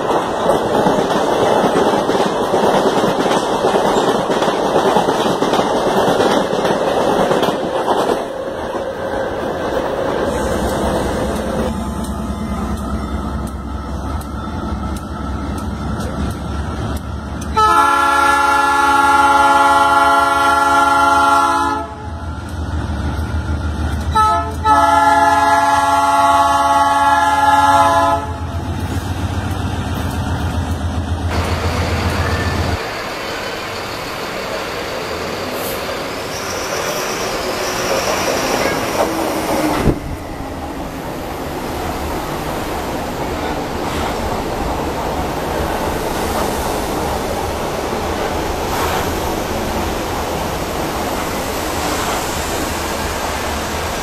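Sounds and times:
diesel locomotive rumbling: 0.0 - 54.0
passing passenger train rolling: 0.0 - 54.0
multi-note train air horn: 17.5 - 22.1, 24.1 - 28.5.

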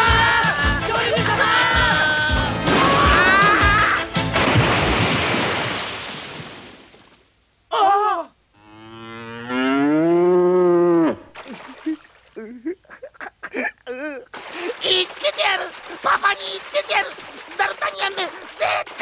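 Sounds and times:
music: 0.0 - 4.4
loud noisy crash: 2.6 - 3.5, 4.3 - 6.8
cow mooing: 8.6 - 11.3.

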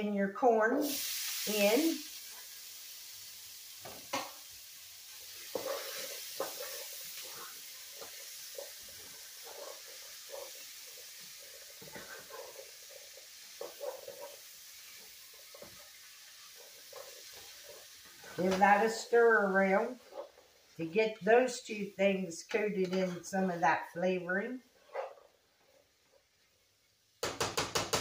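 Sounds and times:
food sizzling: 0.0 - 28.0
spatula scraping pot: 5.4 - 15.8, 16.4 - 18.9.

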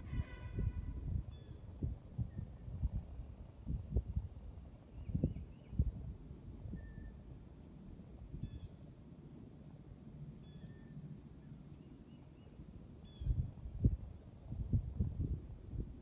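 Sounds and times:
wind rumbling on microphone: 0.0 - 7.1, 13.1 - 16.0
crickets trilling: 0.0 - 16.0.

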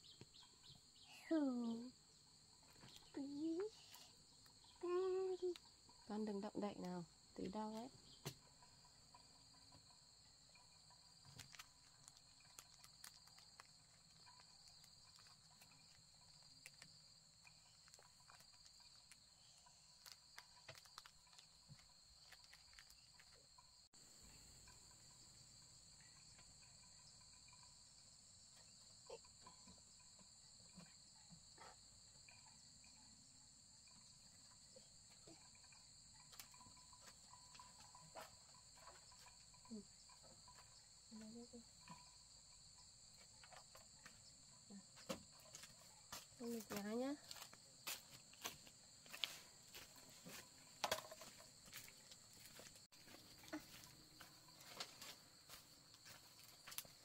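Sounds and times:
insects trilling: 0.0 - 57.0
faint ticks and clicks: 2.6 - 25.2.

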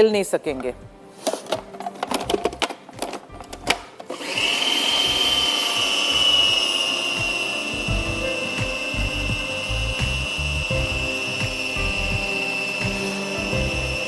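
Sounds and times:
food processor motor whining: 4.1 - 14.0.

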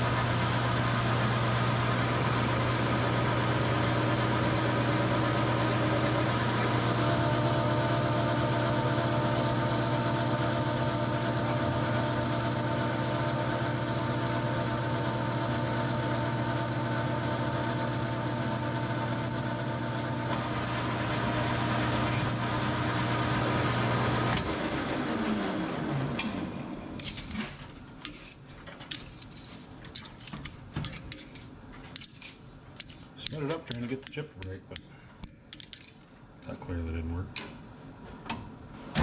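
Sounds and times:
lathe spinning down whine: 0.0 - 27.0
metal lathe motor hum: 0.2 - 27.0.

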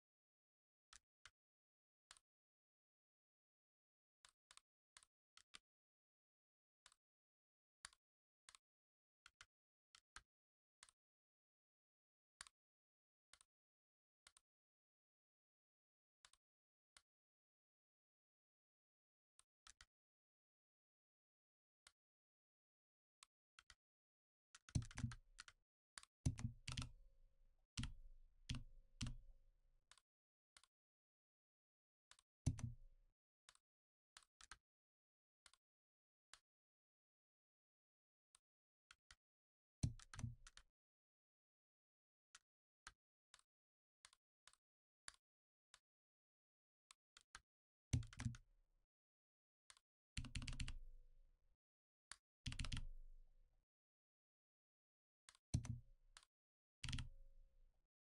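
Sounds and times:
keyboard keystrokes: 52.6 - 52.9
mouse clicks: 55.3 - 57.1.

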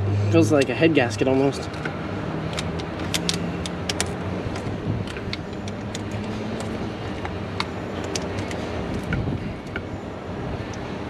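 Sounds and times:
steady low hum: 0.0 - 11.0
socket ratchet clicking: 1.7 - 9.9.

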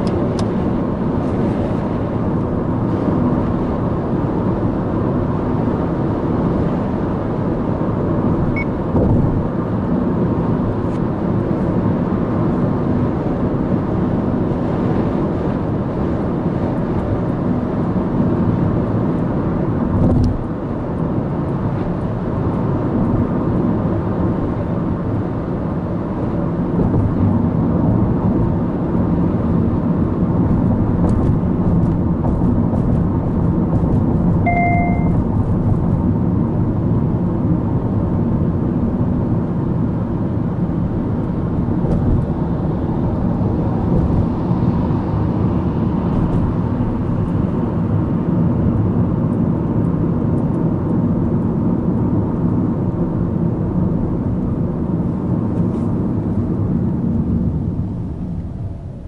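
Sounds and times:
car engine and road noise: 0.0 - 59.0
short electronic beep: 8.5 - 8.8, 34.5 - 35.2.

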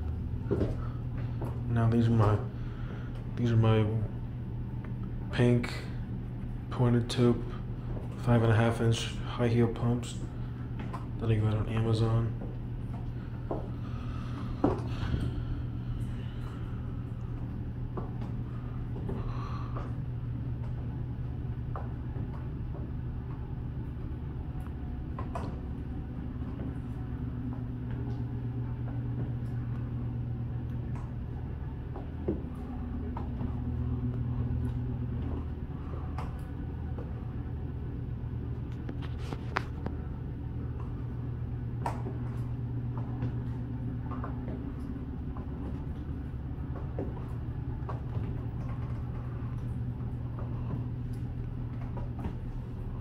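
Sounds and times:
low hum: 0.0 - 53.0.

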